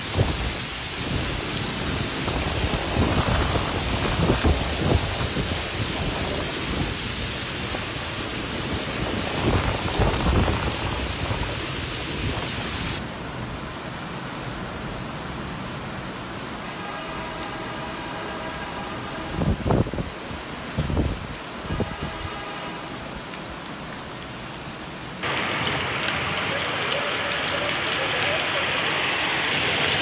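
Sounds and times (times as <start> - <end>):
thunder rumbles: 0.0 - 13.0
heavy rain pouring on street: 0.0 - 30.0.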